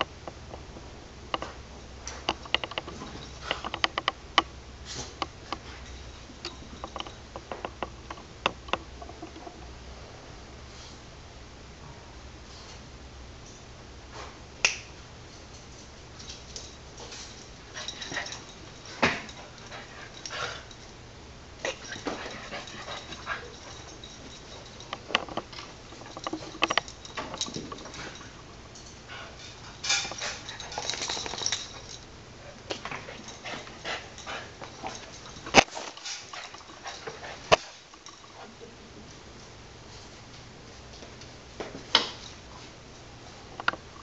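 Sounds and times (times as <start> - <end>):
dog noises and scuffles: 29.1 - 38.6.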